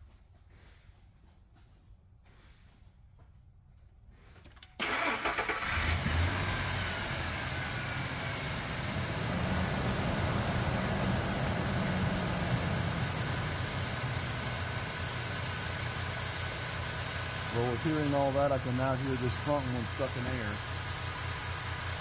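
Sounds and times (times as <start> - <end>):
engine cranking and idling: 4.4 - 22.0
vacuum leak sucking air: 4.9 - 22.0.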